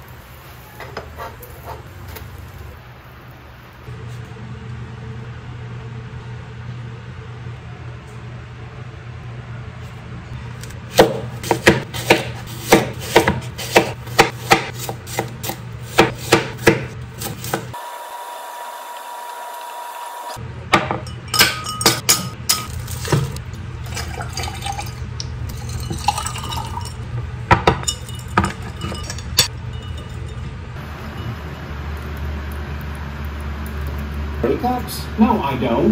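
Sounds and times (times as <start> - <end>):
knife chopping on wooden board: 10.9 - 17.7.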